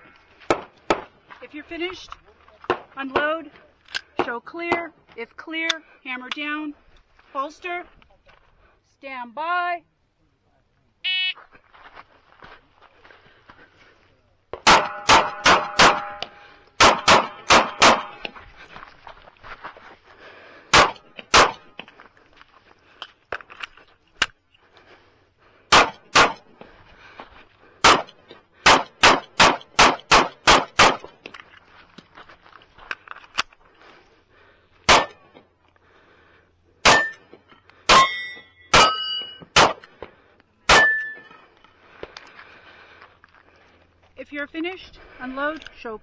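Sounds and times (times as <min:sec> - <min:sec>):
pistol shots: 0:14.6 - 0:18.2, 0:20.7 - 0:21.7, 0:25.7 - 0:26.4, 0:27.8 - 0:31.1, 0:34.9 - 0:35.2, 0:36.8 - 0:37.2, 0:37.9 - 0:39.9, 0:40.7 - 0:41.2
steel targets ringing: 0:14.7 - 0:16.4, 0:36.9 - 0:37.2, 0:37.9 - 0:39.6, 0:40.7 - 0:41.4.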